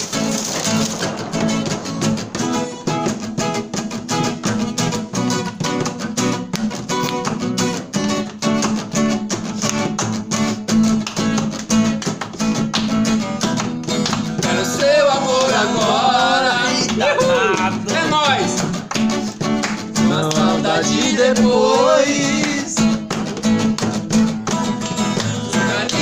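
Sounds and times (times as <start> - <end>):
acoustic guitar strumming: 0.0 - 26.0
man singing: 14.4 - 18.6, 20.0 - 23.0, 25.1 - 26.0.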